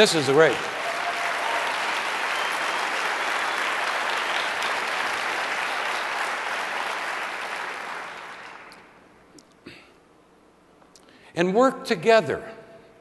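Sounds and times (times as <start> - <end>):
large audience applauding: 0.0 - 9.0.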